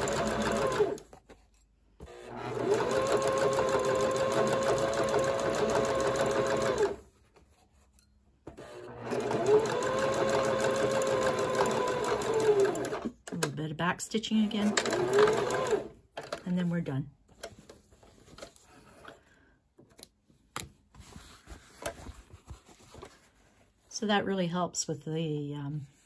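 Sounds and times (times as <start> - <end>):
sewing machine motor whining: 2.1 - 7.0, 14.4 - 15.9.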